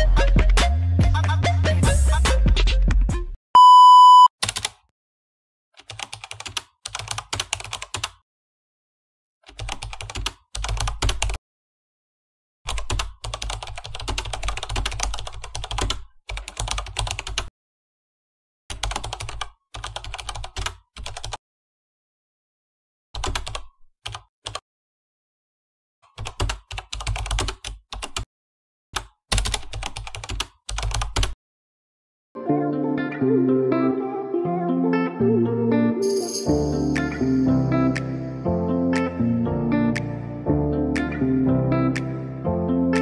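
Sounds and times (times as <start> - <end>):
steady beep: 3.6 - 4.3
computer keyboard typing: 4.4 - 4.8, 5.8 - 8.2, 9.4 - 11.4, 12.7 - 17.5, 18.7 - 21.4, 23.2 - 24.6, 26.1 - 28.3, 29.0 - 31.4.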